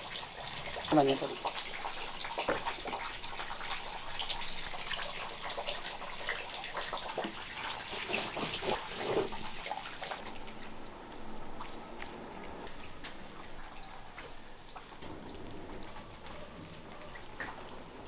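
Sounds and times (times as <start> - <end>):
stone roller grinding wet paste: 7.2 - 9.6.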